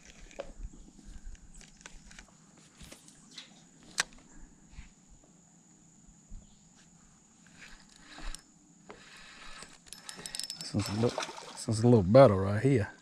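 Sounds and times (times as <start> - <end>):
fishing reel clicks: 7.5 - 10.8.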